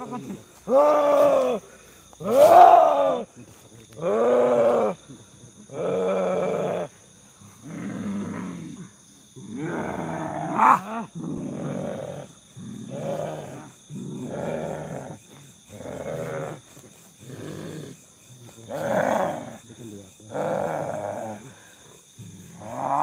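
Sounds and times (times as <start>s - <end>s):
man growling and roaring: 3.9s - 5.0s, 7.6s - 23.0s.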